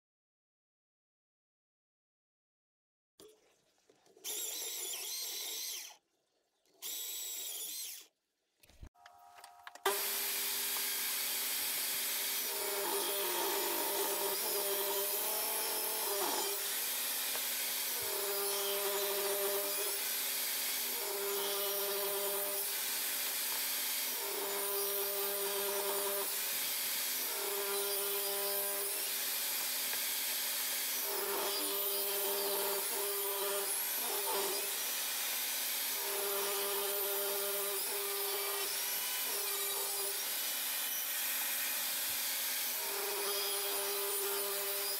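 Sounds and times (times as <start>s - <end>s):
table saw ripping wood: 9.7s - 21.0s.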